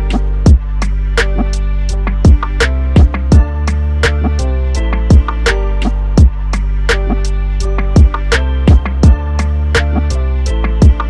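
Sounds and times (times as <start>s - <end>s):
kick drum thumps: 2.2s - 3.5s, 5.1s - 5.3s, 6.2s - 6.4s, 8.0s - 9.2s.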